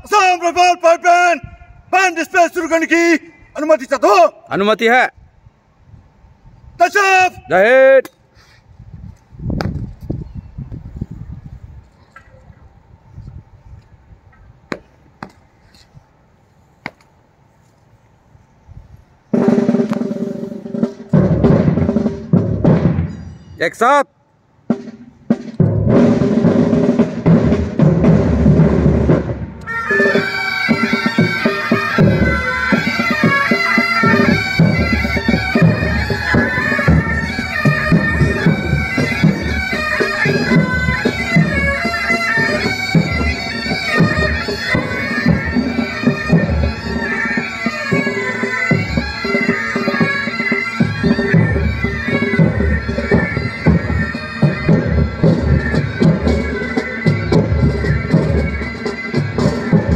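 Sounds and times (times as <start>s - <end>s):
pipe band drums: 19.3s - 23.9s, 24.6s - 59.9s
bagpipes playing: 29.6s - 59.9s.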